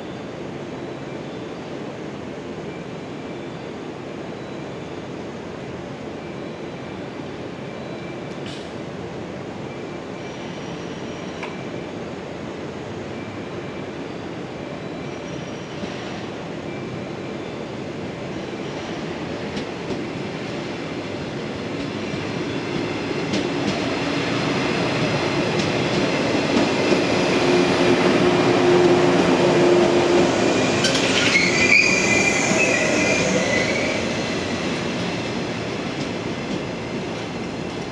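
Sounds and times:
train wheels rumbling past: 18.7 - 37.9
high squeal from wheels: 29.6 - 35.4.

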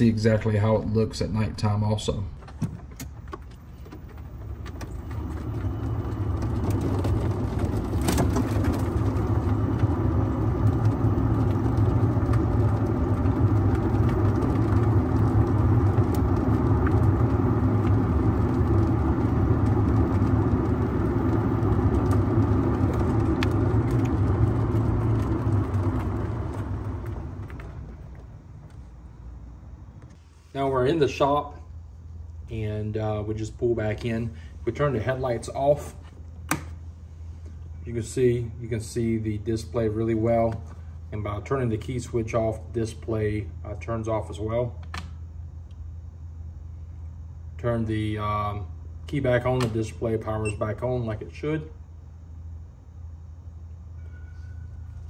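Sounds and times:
golf cart driving: 2.1 - 30.1.

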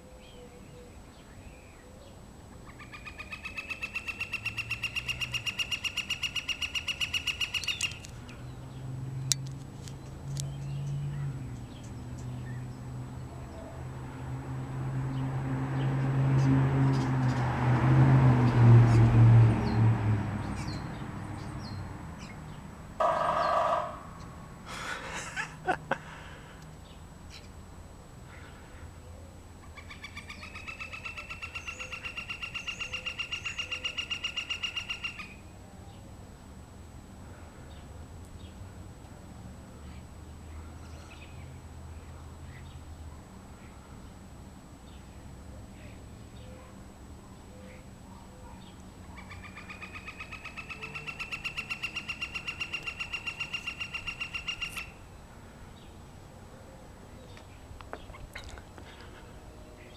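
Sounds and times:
woodpecker drumming: 23.0 - 24.0, 49.5 - 55.0.

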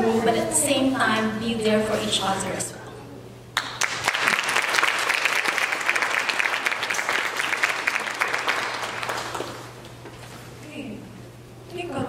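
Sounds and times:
audience clapping: 3.6 - 10.0.

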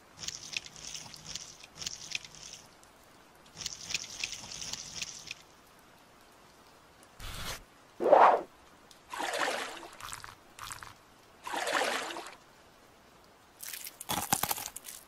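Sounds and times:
sharp wet clicks: 0.1 - 2.9, 3.5 - 5.5.

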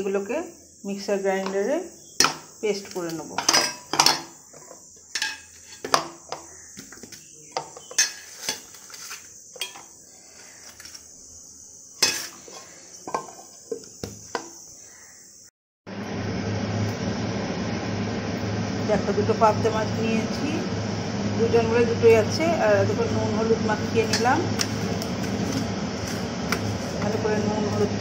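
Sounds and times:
clinks on steel plate: 9.6 - 9.9.

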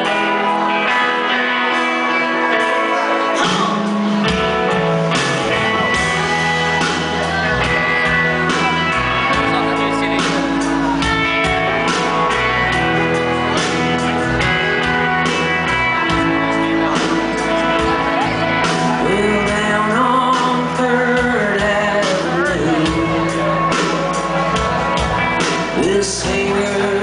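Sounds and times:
electric guitar chords: 0.0 - 27.0.

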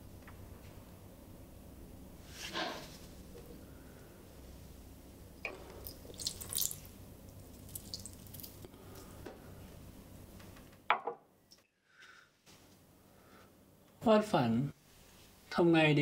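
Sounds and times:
water trickling onto soil: 5.5 - 9.0.

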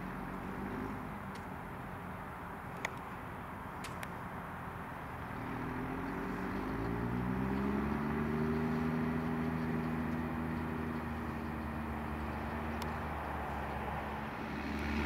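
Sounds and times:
tractor diesel engine under load: 0.0 - 15.0.

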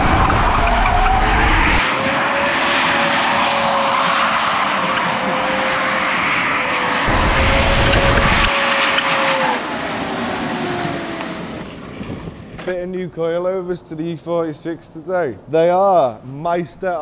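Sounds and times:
car engine driving: 0.0 - 12.6
road and wind noise: 0.0 - 17.0
heavy low rumble: 7.1 - 8.5.

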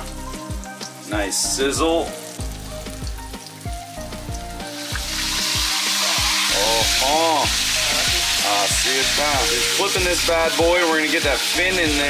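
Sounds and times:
background music with bass beat: 0.0 - 12.0
fish sizzling in hot oil: 0.0 - 12.0.

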